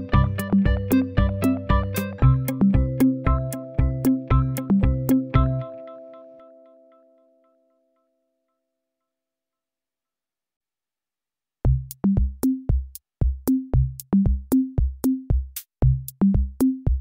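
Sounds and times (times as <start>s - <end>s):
electronic music with drum-machine beat: 0.0s - 5.8s, 11.7s - 17.0s.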